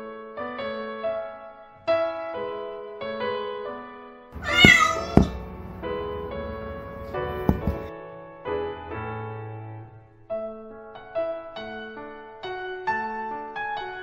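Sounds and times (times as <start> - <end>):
gentle piano music: 0.0 - 14.0
cat meowing: 4.4 - 5.6, 6.9 - 7.9.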